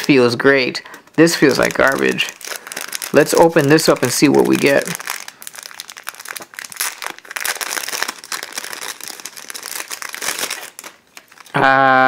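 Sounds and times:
plastic packaging crinkling: 0.0s - 11.6s.

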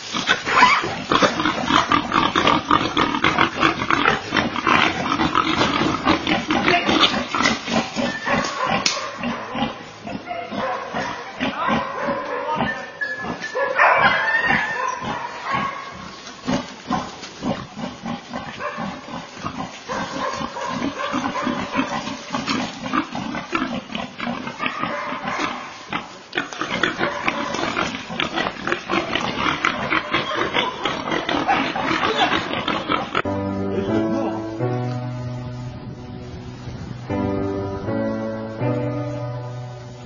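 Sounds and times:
wild boar grunting and squealing: 0.0s - 34.0s
scuffling noise: 14.5s - 23.5s.

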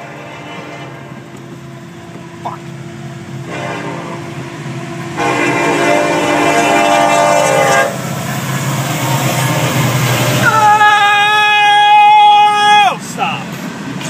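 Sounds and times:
locomotive air horn blowing: 0.0s - 1.2s, 3.4s - 4.3s, 5.2s - 8.0s, 9.0s - 10.7s
low rumble of train: 0.0s - 14.0s.

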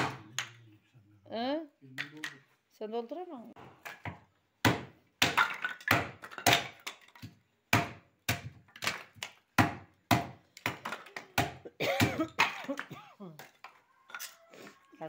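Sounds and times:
hatchet chopping firewood: 0.0s - 0.5s, 3.8s - 12.5s.

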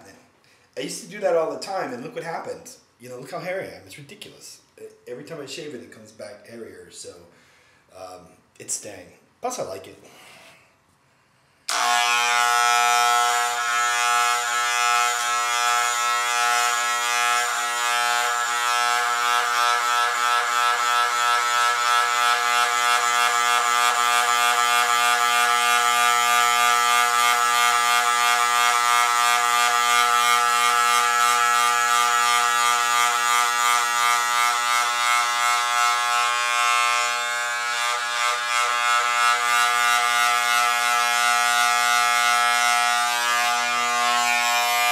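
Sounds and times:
electric hair clippers buzzing: 11.7s - 44.9s.

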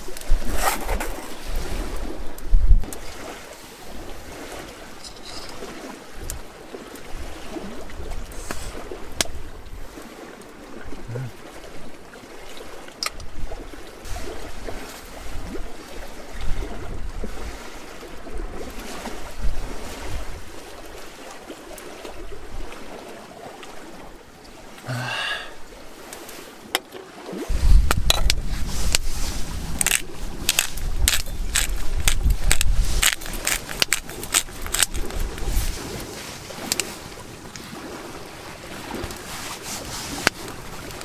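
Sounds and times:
water lapping: 0.0s - 41.0s
wind: 0.0s - 41.0s
sharp clicks and crackles: 29.8s - 35.4s.

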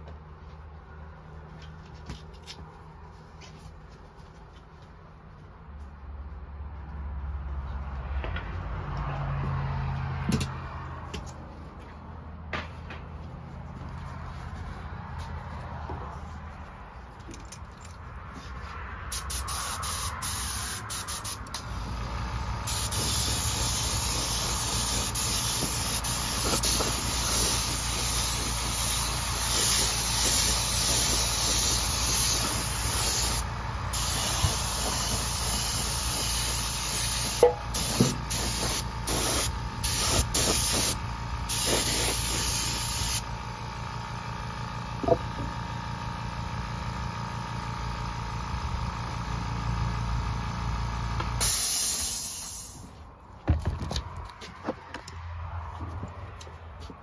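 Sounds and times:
spray paint hissing: 19.1s - 43.3s, 51.4s - 52.9s.

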